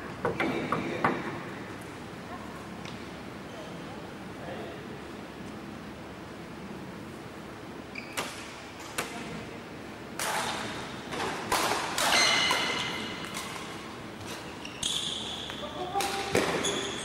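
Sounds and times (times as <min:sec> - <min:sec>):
racket hitting shuttlecock: 0:10.2 - 0:16.7
high-pitched shoe squeaks: 0:14.5 - 0:15.7, 0:16.6 - 0:17.0.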